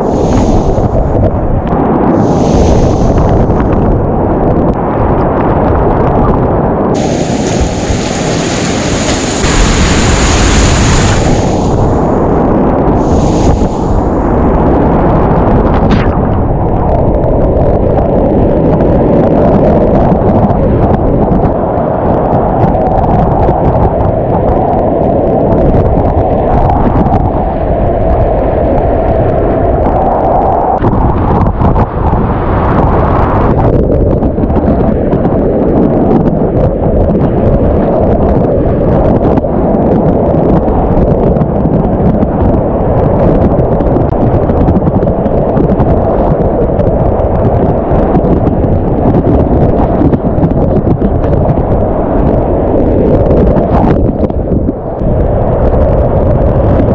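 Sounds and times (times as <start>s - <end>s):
wind buffeting microphone: 0.0s - 56.9s
whitewater rapids rushing: 7.0s - 12.0s
water splashes and spray: 7.0s - 12.2s, 13.0s - 14.2s.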